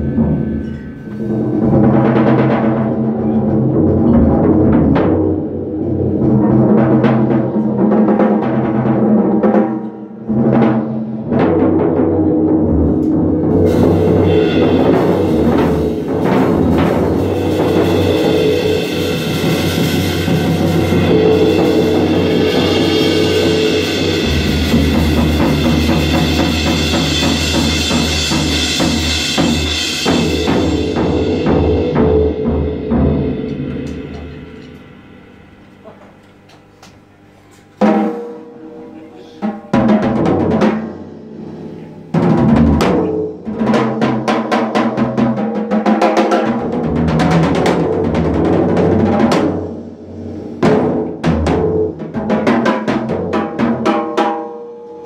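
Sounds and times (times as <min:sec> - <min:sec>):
rock band playing: 0:00.0 - 0:35.9
cymbals: 0:00.0 - 0:36.5, 0:37.2 - 0:47.8, 0:48.8 - 0:55.0
drums: 0:00.0 - 0:55.0
electric bass line: 0:12.2 - 0:35.9.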